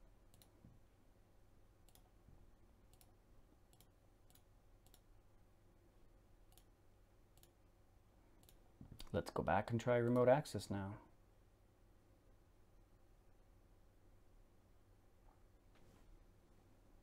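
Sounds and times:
faint computer mouse clicks: 0:00.3 - 0:00.6, 0:01.9 - 0:02.1, 0:02.9 - 0:05.1, 0:07.4 - 0:07.6, 0:08.4 - 0:09.1.

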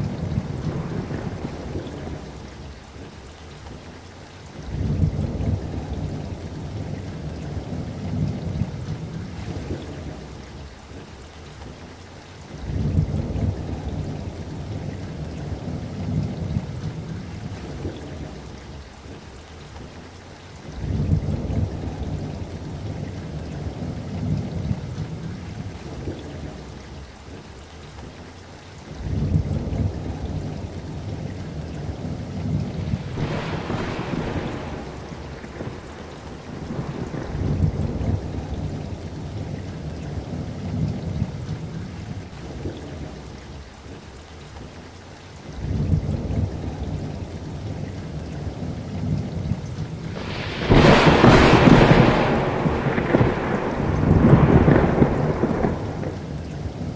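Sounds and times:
thunder rolling: 0:00.0 - 0:03.1, 0:32.0 - 0:39.6, 0:48.5 - 0:56.9
steady rain: 0:00.0 - 0:56.9.

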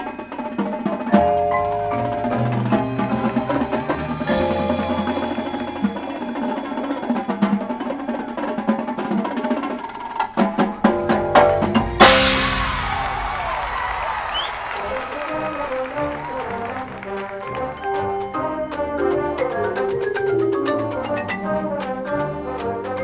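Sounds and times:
snare drums: 0:00.0 - 0:23.0
marimbas and mallet instruments: 0:01.1 - 0:06.4, 0:17.4 - 0:22.5
cymbal crash: 0:11.4 - 0:15.8.

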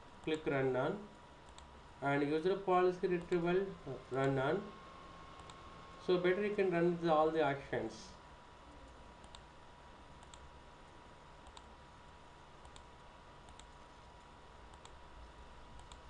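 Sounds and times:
computer mouse clicks: 0:01.4 - 0:01.7, 0:05.4 - 0:05.6, 0:08.9 - 0:09.5, 0:10.2 - 0:10.5, 0:11.4 - 0:11.7, 0:12.6 - 0:15.0, 0:15.7 - 0:16.0.

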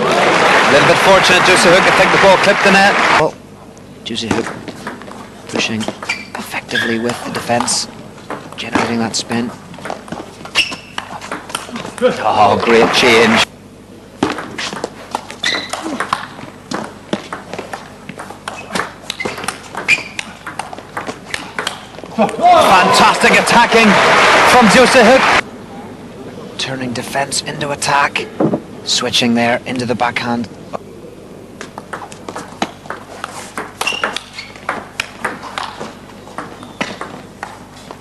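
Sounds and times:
short squeaks: 0:05.8 - 0:07.1, 0:10.5 - 0:11.1, 0:15.4 - 0:15.9, 0:18.5 - 0:20.3, 0:33.8 - 0:34.7
table tennis ball clicking: 0:32.0 - 0:35.8.

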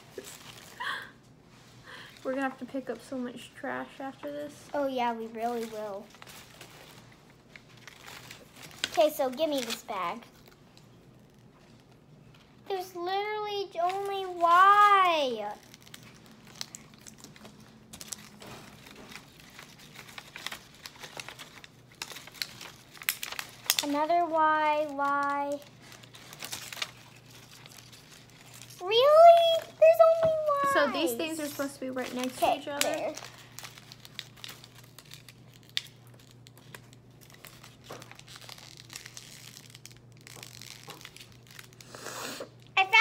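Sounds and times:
packaging crinkling: 0:00.0 - 0:01.1, 0:05.1 - 0:12.6, 0:13.6 - 0:43.0
paper snap: 0:20.0 - 0:24.1, 0:32.2 - 0:33.2.

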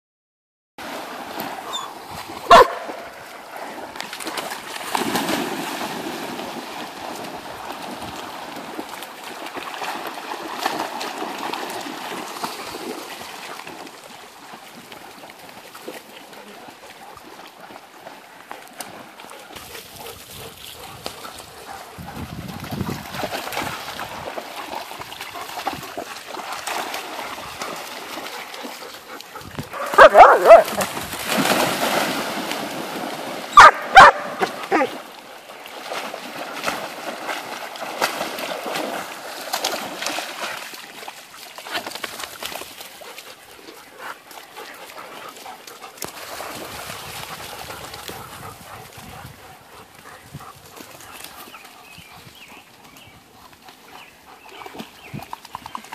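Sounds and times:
water splashing: 0:00.8 - 0:50.2
dogs barking and yipping: 0:01.7 - 0:03.0, 0:28.9 - 0:30.9, 0:33.5 - 0:35.0.

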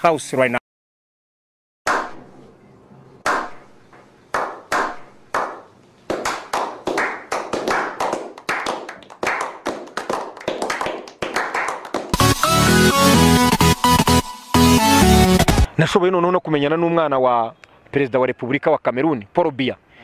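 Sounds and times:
people clapping: 0:04.3 - 0:12.4.

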